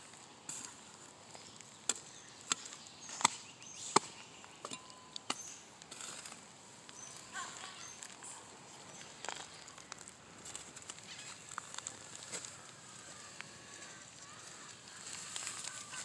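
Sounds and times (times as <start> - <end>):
hoe chopping dry soil: 1.8 - 6.5.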